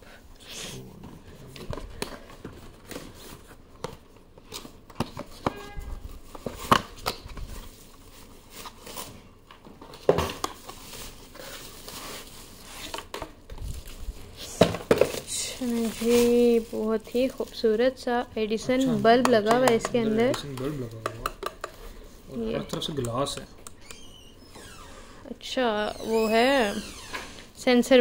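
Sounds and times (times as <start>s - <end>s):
wrapping crinkling and tearing: 6.0s - 18.2s.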